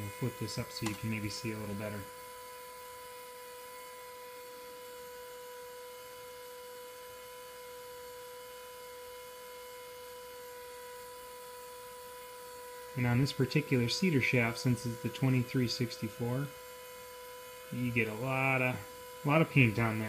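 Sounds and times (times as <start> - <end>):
small electric motor humming: 0.0 - 20.0.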